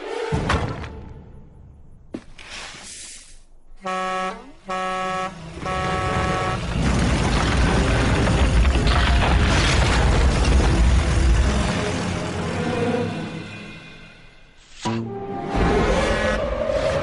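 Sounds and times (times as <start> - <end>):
horn honks: 3.8 - 6.8.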